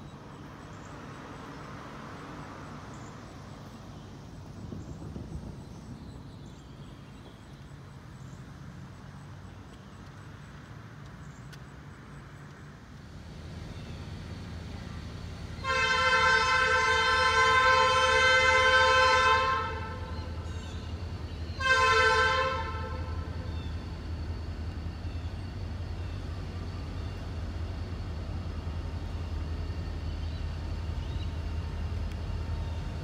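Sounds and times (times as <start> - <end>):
locomotive horn blasts: 15.5 - 20.5, 21.5 - 23.5.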